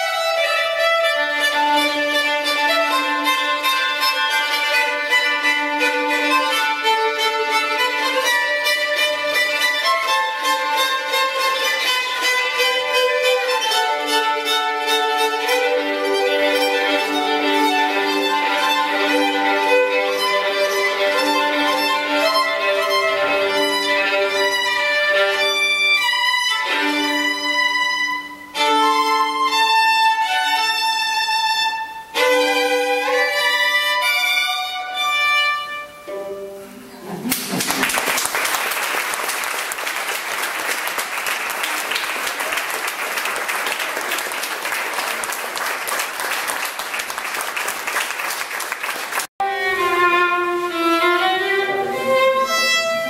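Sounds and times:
solo violin playing: 0:00.0 - 0:37.2, 0:49.4 - 0:53.0
audience applause: 0:37.0 - 0:49.3.

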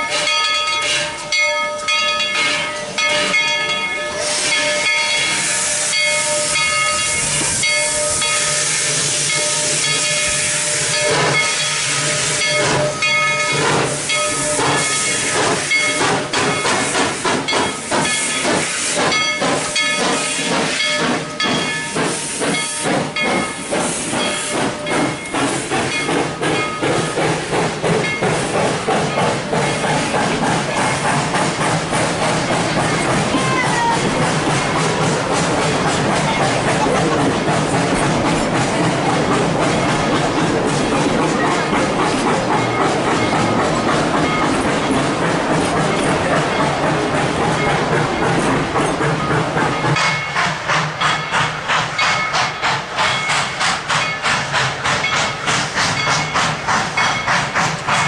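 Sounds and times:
steam locomotive hissing: 0:00.0 - 0:58.0
locomotive exhaust chuffing: 0:04.3 - 0:58.0.

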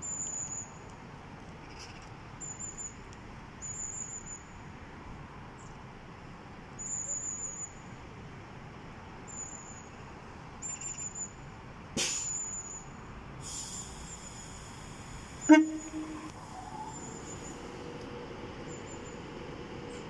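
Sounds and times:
train high whine: 0:13.5 - 0:20.0
train horn toot: 0:15.4 - 0:16.4.

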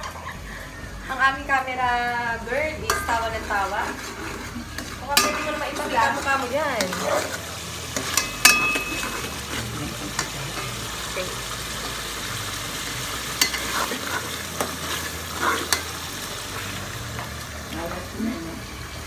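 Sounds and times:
meat sauce frying in a pot: 0:02.2 - 0:19.0
spatula scraping a pot: 0:03.1 - 0:10.7, 0:13.4 - 0:16.0
spatula clinking against pot: 0:04.8 - 0:07.3, 0:08.0 - 0:09.3, 0:13.4 - 0:13.9.

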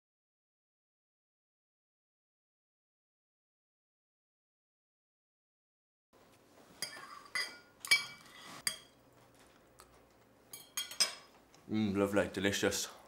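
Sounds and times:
cutlery clinking on plate: 0:06.8 - 0:09.0, 0:10.5 - 0:11.4.

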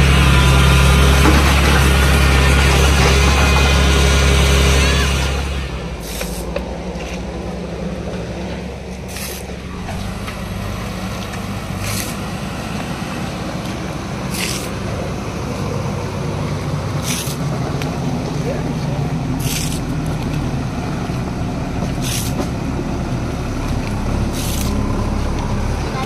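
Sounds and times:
diesel engine running: 0:00.0 - 0:26.0
short scraping hiss: 0:06.0 - 0:06.5.

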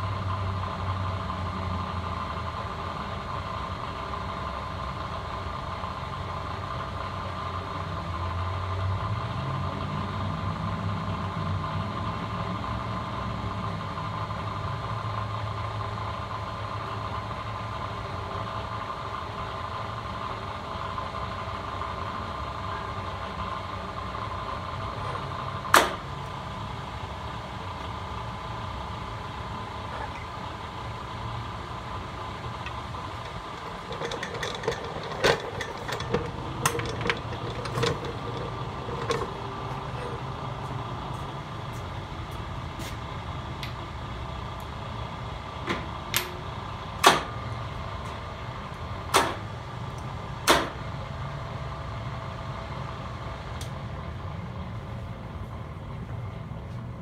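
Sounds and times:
drill press motor humming: 0:32.5 - 0:40.0
sharp knocks and clicks: 0:32.6 - 0:39.4.

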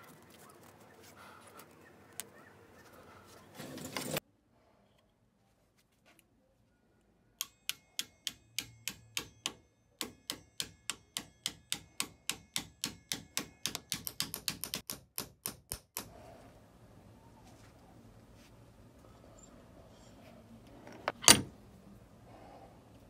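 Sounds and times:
hammer tapping on metal: 0:07.4 - 0:16.1.

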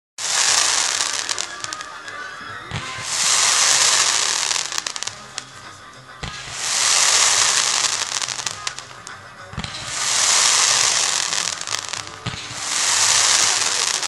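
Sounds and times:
firework bang: 0:00.2 - 0:14.0
firework sizzling crackle: 0:00.2 - 0:14.0.

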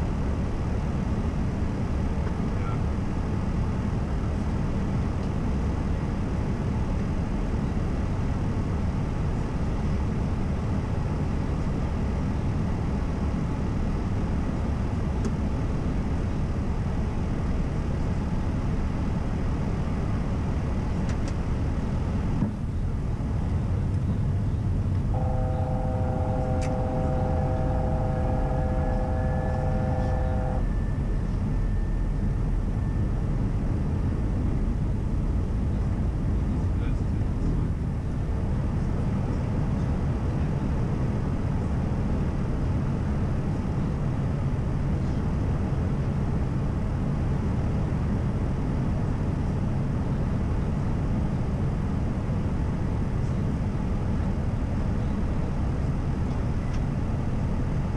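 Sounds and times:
cockpit airflow and engine noise: 0:00.0 - 0:57.9
multi-pitch steady tone: 0:25.1 - 0:33.1.

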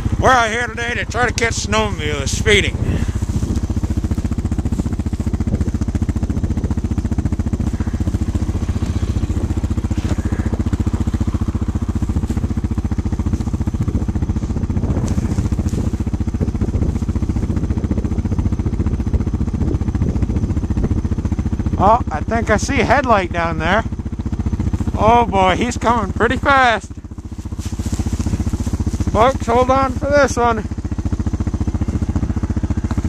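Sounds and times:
snowmobile engine idling: 0:00.0 - 0:33.0.

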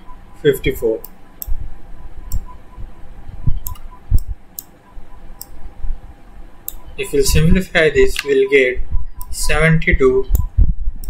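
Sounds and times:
sharp clicks: 0:02.3 - 0:02.5, 0:03.6 - 0:04.8, 0:05.4 - 0:05.6, 0:06.6 - 0:06.8.

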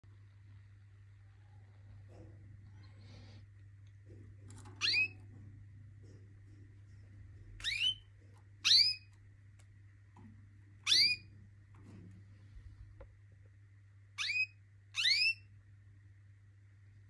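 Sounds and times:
low steady hum: 0:00.0 - 0:17.0
canary chirps: 0:04.4 - 0:05.5, 0:07.2 - 0:12.0, 0:14.1 - 0:15.6.

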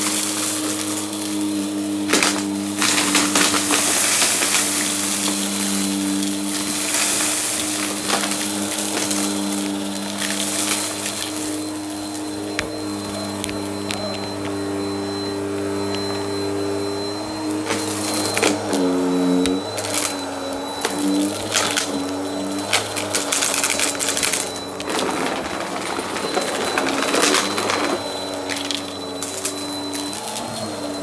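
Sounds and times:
vacuum cleaner running: 0:00.0 - 0:31.0
debris clicking and rattling: 0:02.0 - 0:14.1, 0:20.8 - 0:30.2.

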